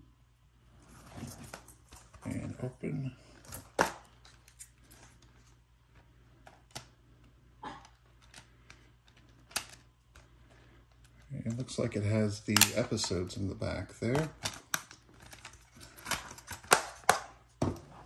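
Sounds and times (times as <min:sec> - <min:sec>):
plastic clicks and rustles: 0:03.4 - 0:11.7, 0:14.0 - 0:17.2
plastic case snapping open: 0:14.2 - 0:17.3.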